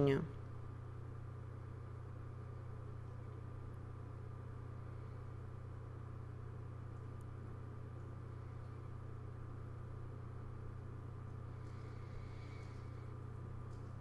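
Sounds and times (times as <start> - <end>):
low hum: 0.0 - 14.0.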